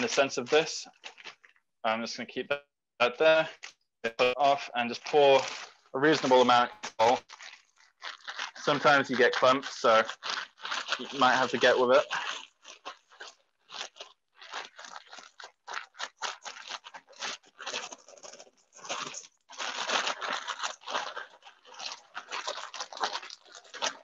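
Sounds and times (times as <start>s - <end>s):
plastic bag crinkling: 0.0s - 1.6s, 3.2s - 24.0s
dry substrate rustling and crunching: 4.4s - 12.0s.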